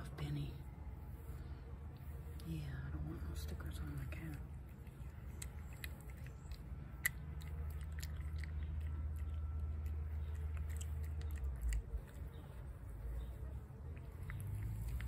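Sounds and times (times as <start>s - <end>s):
cat chewing wet food: 3.6s - 15.0s.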